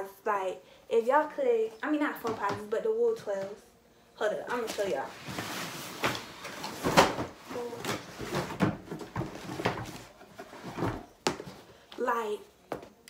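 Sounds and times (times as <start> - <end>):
shoe boxes being rummaged: 4.5 - 11.7.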